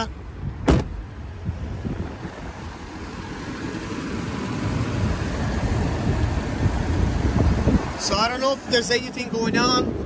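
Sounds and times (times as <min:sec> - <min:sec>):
car engine idling: 0:00.0 - 0:10.0
car door thump: 0:00.6 - 0:01.0.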